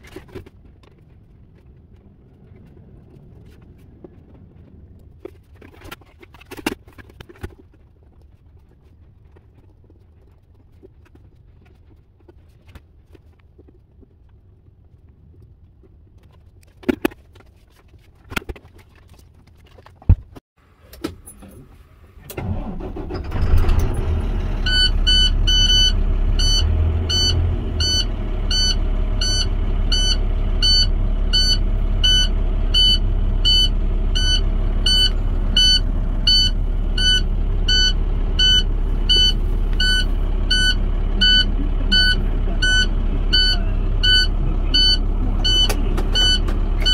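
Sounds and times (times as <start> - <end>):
diesel truck engine starting and idling: 20.7 - 46.9
high warning beep: 24.6 - 46.9.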